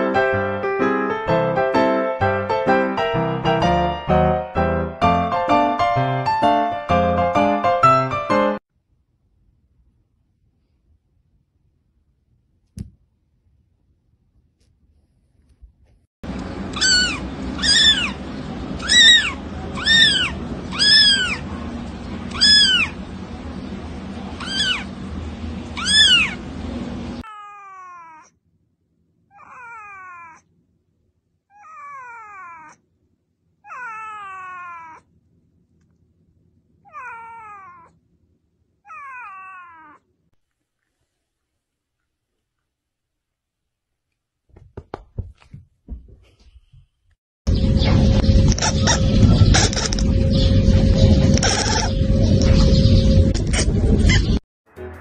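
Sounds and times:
cat meowing: 0:16.7 - 0:18.2, 0:18.8 - 0:21.4, 0:22.3 - 0:23.0, 0:24.4 - 0:24.9, 0:25.8 - 0:26.4, 0:27.3 - 0:28.4, 0:29.3 - 0:30.5, 0:31.5 - 0:32.8, 0:33.6 - 0:35.1, 0:36.8 - 0:38.0, 0:38.8 - 0:40.1.

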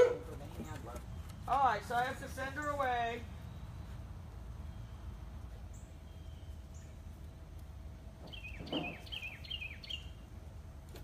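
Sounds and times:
bird chirping: 0:04.6 - 0:07.3, 0:08.2 - 0:10.3.

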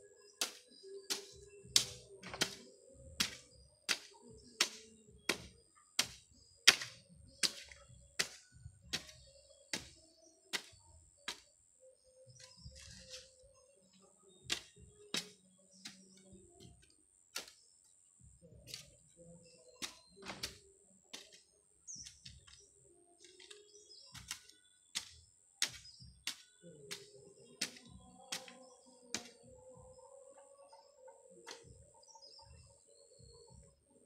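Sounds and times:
hoe chopping dry soil: 0:00.2 - 0:11.6, 0:12.3 - 0:13.4, 0:14.4 - 0:17.7, 0:18.6 - 0:29.5, 0:31.4 - 0:31.8.

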